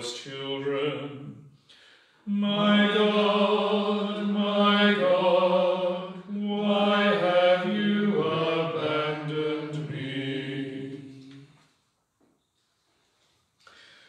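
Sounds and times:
man chanting: 0:00.0 - 0:01.3.

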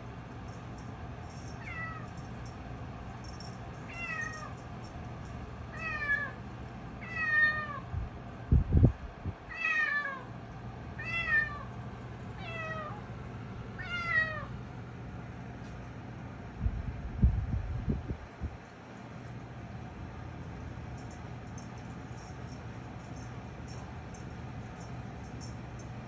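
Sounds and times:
cat meowing: 0:01.6 - 0:02.2, 0:03.9 - 0:04.6, 0:05.7 - 0:06.4, 0:07.0 - 0:07.9, 0:09.5 - 0:10.3, 0:11.0 - 0:11.7, 0:12.4 - 0:13.1, 0:13.8 - 0:14.5.

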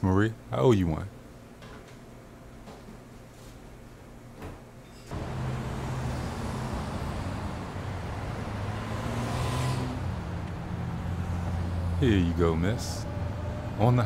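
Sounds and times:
road traffic rumble: 0:05.1 - 0:14.0
vehicle passing: 0:05.1 - 0:14.0.

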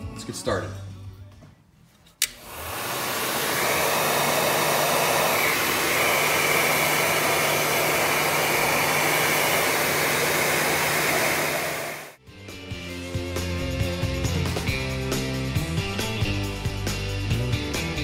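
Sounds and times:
heat gun fan blowing: 0:02.2 - 0:12.2.

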